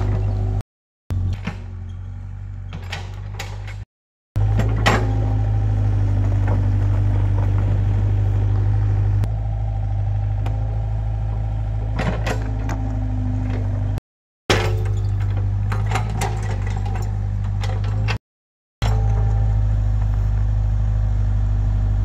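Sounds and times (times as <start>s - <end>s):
diesel engine running: 4.4s - 14.0s, 18.8s - 22.0s
excavator bucket clanks: 14.5s - 18.2s.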